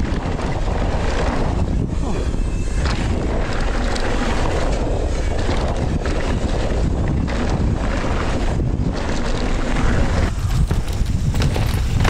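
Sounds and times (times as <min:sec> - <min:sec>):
bike tyres rolling over gravel: 0:00.0 - 0:02.2, 0:02.8 - 0:12.0
wind buffeting microphone: 0:00.0 - 0:12.0
bike rattling and knocking: 0:05.4 - 0:12.0.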